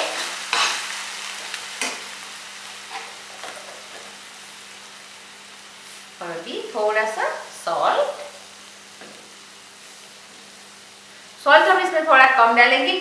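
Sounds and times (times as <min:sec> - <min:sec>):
onion sizzling in a pan: 0:00.0 - 0:13.0.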